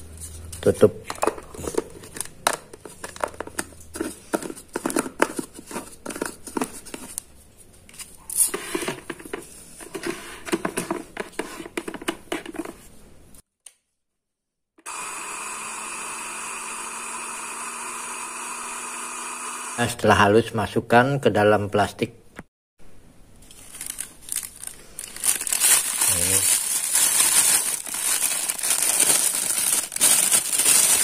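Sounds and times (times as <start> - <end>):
blender motor grinding: 14.8 - 20.0.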